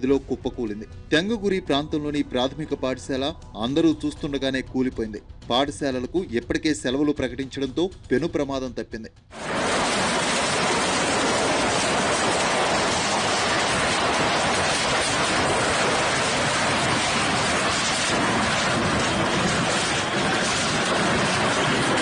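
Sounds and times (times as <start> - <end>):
floodwater rushing: 9.4 - 22.0.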